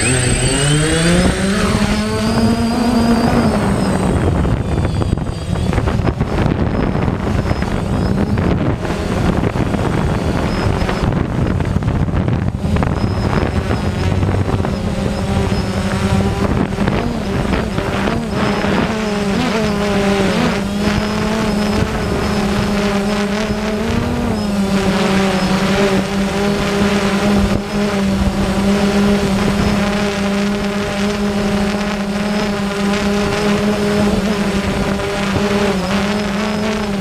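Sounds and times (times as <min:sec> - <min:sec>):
drone propellers humming: 0:00.0 - 0:37.0.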